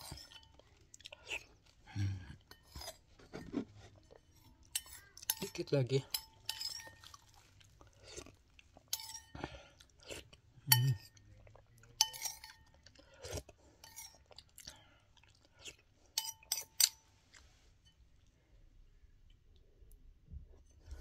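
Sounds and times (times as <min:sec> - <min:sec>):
chewing and slurping: 0:00.0 - 0:17.6
metal spoon clinking on ceramic bowl: 0:04.4 - 0:07.1, 0:08.9 - 0:09.4, 0:10.7 - 0:11.2, 0:12.0 - 0:12.8, 0:13.8 - 0:14.2, 0:16.2 - 0:17.0.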